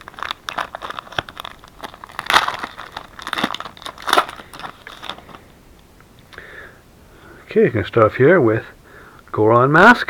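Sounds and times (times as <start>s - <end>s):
wrapper tearing and crinkling: 0.0s - 5.5s.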